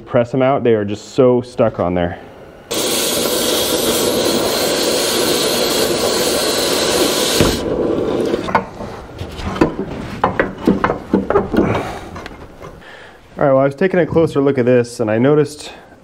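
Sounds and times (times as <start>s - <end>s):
cutting torch hissing: 2.7s - 8.5s.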